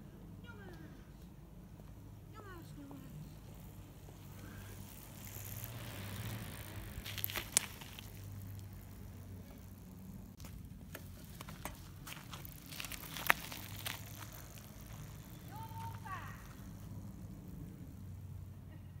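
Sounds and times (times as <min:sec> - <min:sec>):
bike rolling over gritty asphalt: 0:01.6 - 0:18.8
bike clicks and rattles: 0:03.6 - 0:18.5.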